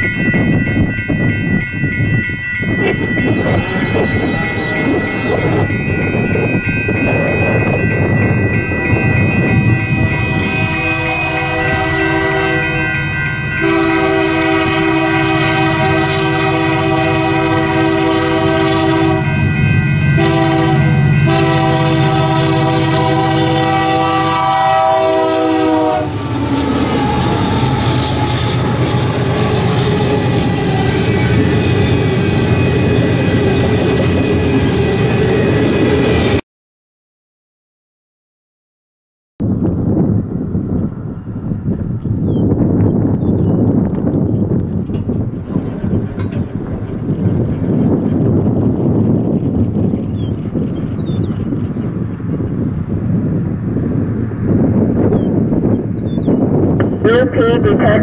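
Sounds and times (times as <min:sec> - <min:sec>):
locomotive air horn: 0:08.8 - 0:35.2
wheels clacking over rail joints: 0:44.6 - 0:52.6.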